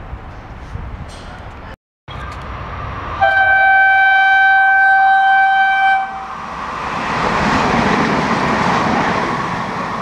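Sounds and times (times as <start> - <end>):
train passing: 0.1 - 10.0
train horn blast: 3.2 - 6.3.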